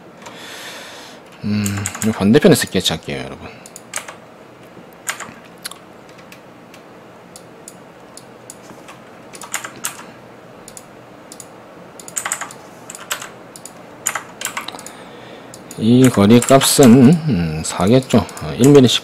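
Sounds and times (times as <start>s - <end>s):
computer keyboard keystrokes: 1.6s - 2.3s, 3.6s - 4.2s, 5.0s - 16.7s.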